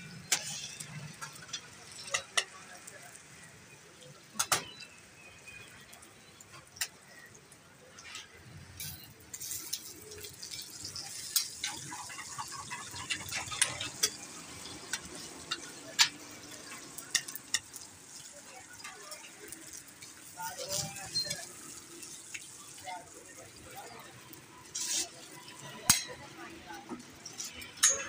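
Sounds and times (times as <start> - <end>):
flatbread sizzling on griddle: 0.0 - 28.0
steel tongs tapping griddle: 0.2 - 3.1, 8.0 - 22.5, 24.7 - 28.0
stirring in steel bowl: 8.8 - 17.8.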